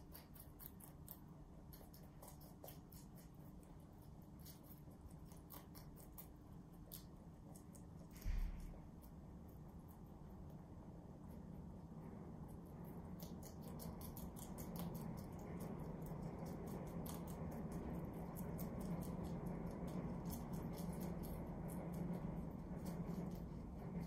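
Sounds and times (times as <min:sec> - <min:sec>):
rabbits chewing leafy greens: 0:00.0 - 0:24.0.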